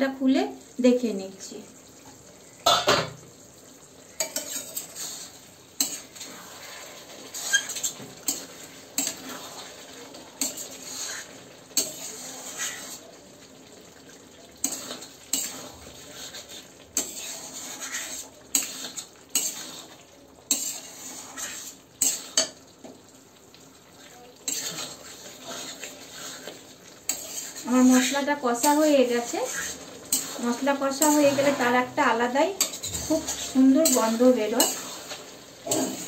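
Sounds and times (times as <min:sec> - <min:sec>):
low sizzle: 0:00.0 - 0:36.0
metal spatula scraping a pan: 0:04.1 - 0:13.2, 0:14.6 - 0:22.7, 0:24.4 - 0:36.0.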